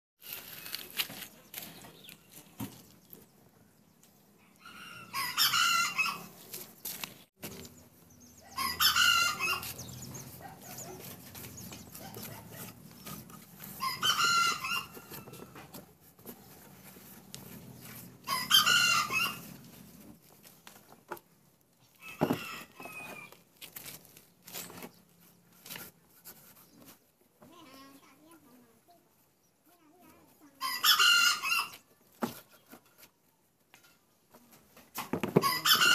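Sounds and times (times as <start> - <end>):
rooster crowing: 8.5 - 9.7.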